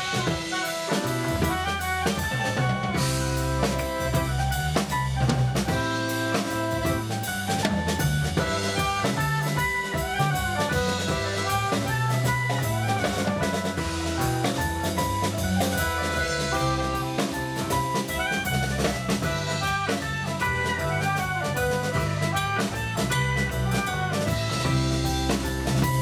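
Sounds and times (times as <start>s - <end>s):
clarinet melody: 0.0s - 26.0s
drum kit beat: 0.0s - 26.0s
electric bass: 0.0s - 26.0s
keyboard: 0.0s - 26.0s
soprano saxophone melody: 0.0s - 26.0s.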